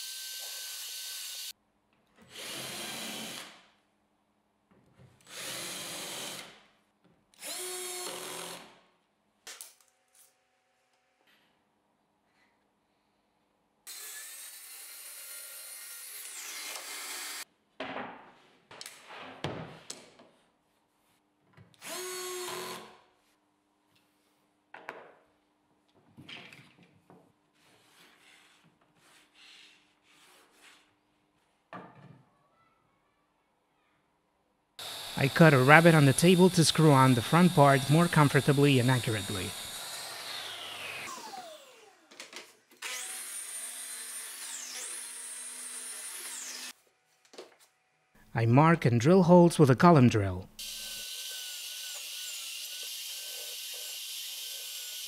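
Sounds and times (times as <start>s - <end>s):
cordless drill whining: 21.8s - 22.9s, 34.8s - 42.1s
power saw cutting: 34.8s - 42.1s.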